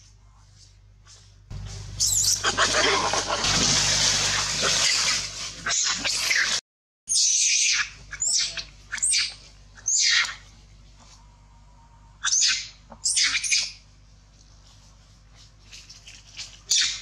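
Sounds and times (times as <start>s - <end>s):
macaque screaming: 2.0s - 3.5s, 4.3s - 10.5s, 12.2s - 13.8s.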